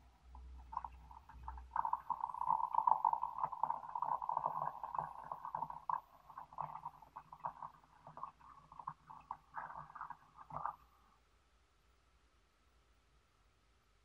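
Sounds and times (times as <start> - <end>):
water pouring into glass teapot: 0.4 - 10.8.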